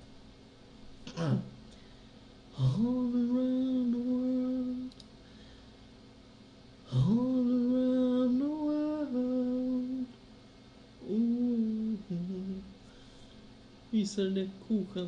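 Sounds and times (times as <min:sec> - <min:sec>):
person humming: 0:02.5 - 0:05.0, 0:06.9 - 0:10.2, 0:11.0 - 0:12.7.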